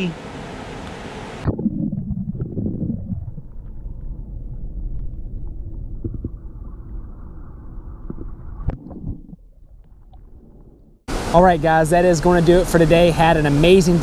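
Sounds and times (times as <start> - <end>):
muffled underwater rumble: 1.4 - 11.1.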